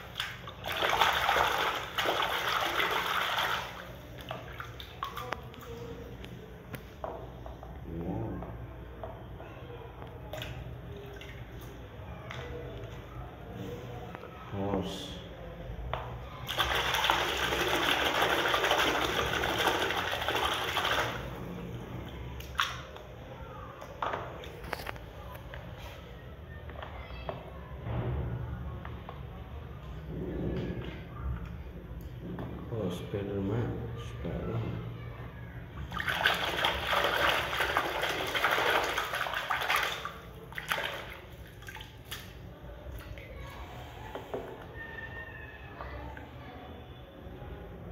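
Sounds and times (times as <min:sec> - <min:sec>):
water splashing in a plastic tub: 0:00.0 - 0:07.4, 0:10.2 - 0:13.0, 0:16.4 - 0:25.1, 0:35.6 - 0:43.7.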